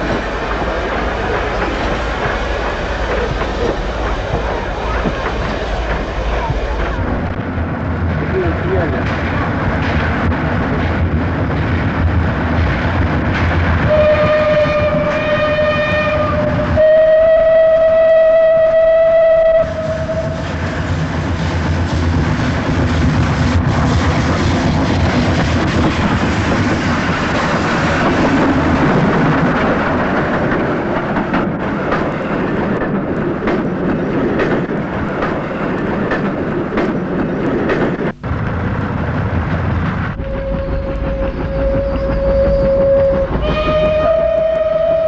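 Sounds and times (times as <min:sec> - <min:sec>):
steam locomotive running noise: 0:00.0 - 0:45.0
steam whistle: 0:13.8 - 0:20.6, 0:40.2 - 0:45.0.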